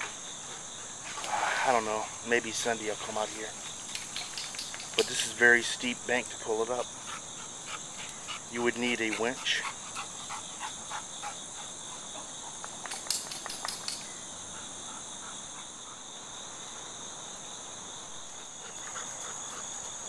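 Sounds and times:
crickets chirping: 0:00.0 - 0:20.0
sharp clicks and crackles: 0:12.6 - 0:14.1.

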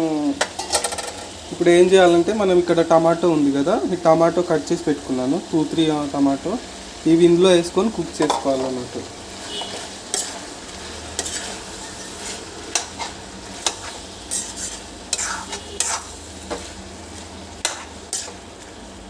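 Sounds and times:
food sizzling: 0:00.0 - 0:19.0
metal spatula scraping pan: 0:09.3 - 0:16.8, 0:17.6 - 0:18.8.

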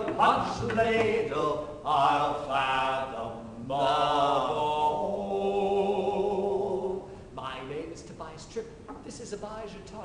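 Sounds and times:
men singing: 0:00.0 - 0:07.1.

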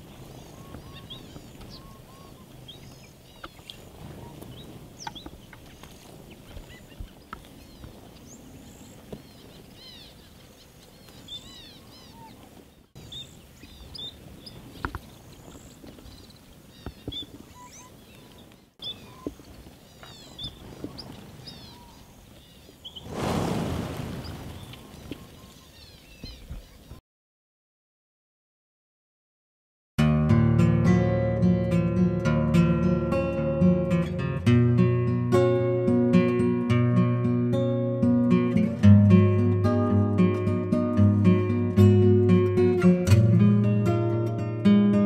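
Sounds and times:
finches chirping: 0:00.0 - 0:12.4.

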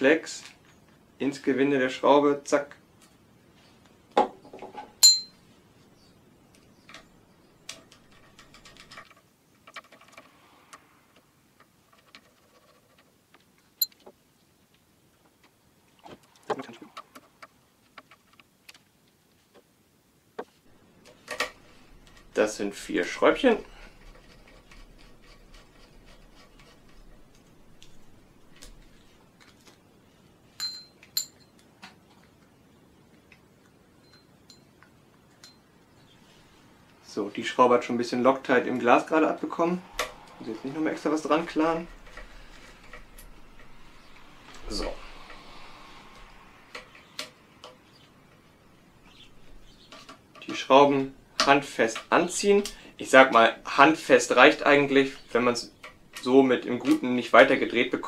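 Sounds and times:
ringing metallic clinks: 0:05.0 - 0:05.4, 0:30.6 - 0:31.6, 0:34.0 - 0:34.8.

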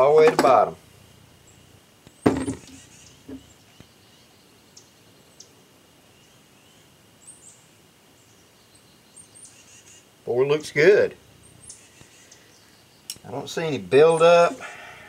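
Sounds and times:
low outdoor background: 0:00.0 - 0:15.0
faint bird chirps: 0:01.1 - 0:10.5, 0:11.3 - 0:15.0
sharp knock: 0:02.2 - 0:02.8
faint clicks: 0:13.0 - 0:13.3.

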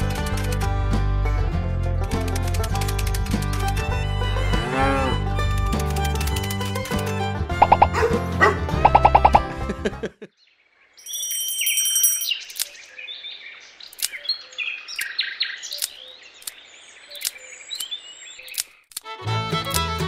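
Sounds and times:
background music: 0:00.0 - 0:10.2, 0:19.0 - 0:20.0
sharp clicks: 0:02.1 - 0:03.8, 0:05.5 - 0:08.0, 0:08.8 - 0:09.4, 0:12.5 - 0:12.8, 0:13.9 - 0:14.3, 0:14.9 - 0:19.9
birds chirping: 0:07.6 - 0:09.5, 0:10.2 - 0:18.9
bright twinkling chime: 0:11.0 - 0:12.5.

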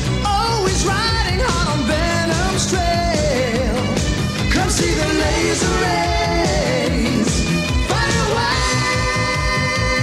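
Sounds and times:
rock music with drum beat: 0:00.0 - 0:10.0
person singing: 0:04.6 - 0:10.0.

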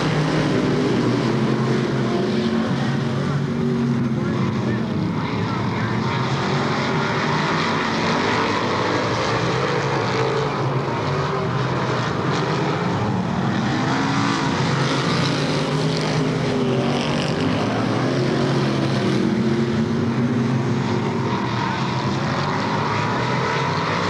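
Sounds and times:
race car engines droning: 0:00.0 - 0:24.0.

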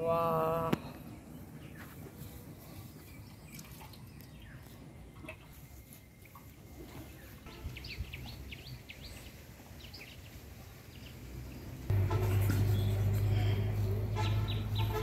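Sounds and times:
faint outdoor background noise: 0:00.0 - 0:15.0
small birds chirping: 0:00.6 - 0:11.7, 0:12.6 - 0:15.0
steady low hum: 0:11.9 - 0:15.0.

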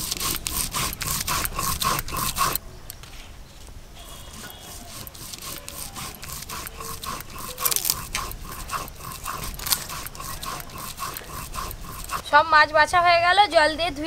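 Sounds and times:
fast panting-like strokes: 0:00.0 - 0:02.6, 0:04.0 - 0:13.1
scraping and rustling of prawns: 0:00.0 - 0:02.6, 0:04.0 - 0:12.4.

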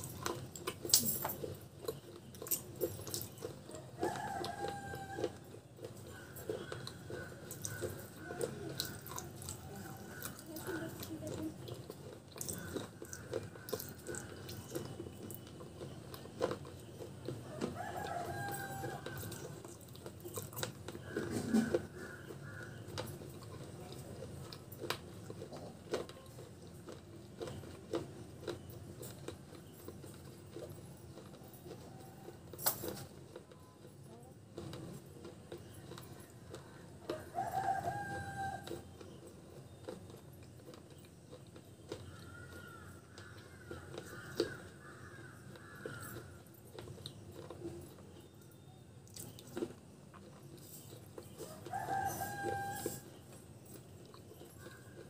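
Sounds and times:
chickens clucking: 0:00.0 - 0:33.6
crunching and chewing clay: 0:00.0 - 0:55.0
rooster crowing: 0:03.9 - 0:05.5, 0:17.5 - 0:19.6, 0:37.1 - 0:38.8, 0:51.4 - 0:53.1.

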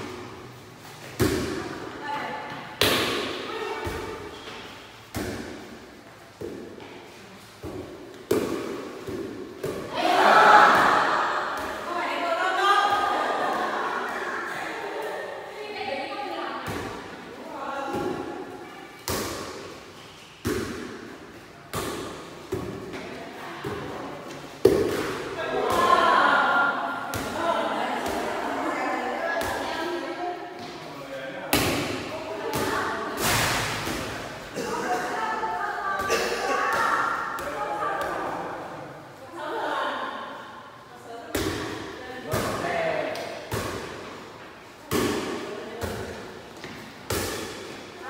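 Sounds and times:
ball hit by hand echoing: 0:07.6 - 0:09.9, 0:24.6 - 0:26.0.

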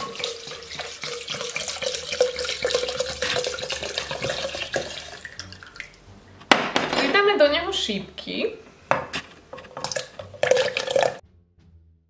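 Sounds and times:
liquid pouring into glass jar: 0:00.0 - 0:06.0, 0:09.6 - 0:11.2.

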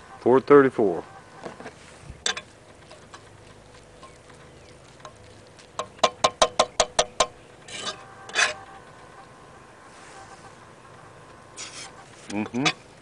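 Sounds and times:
fork tapping metal skillet: 0:05.8 - 0:08.6.

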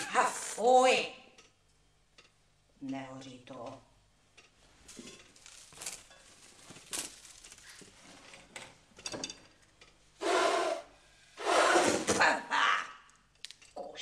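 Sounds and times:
brushwood rustling in stove: 0:04.7 - 0:08.8
woman blowing into firebox: 0:10.2 - 0:12.1.

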